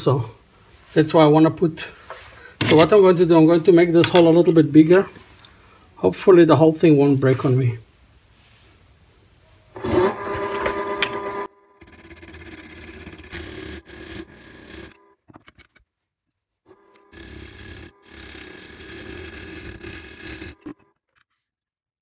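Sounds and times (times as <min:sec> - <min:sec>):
turning tool scraping wood: 0:02.0 - 0:04.5, 0:09.8 - 0:15.8, 0:16.7 - 0:21.0
lathe motor humming: 0:09.8 - 0:15.2, 0:16.7 - 0:20.9.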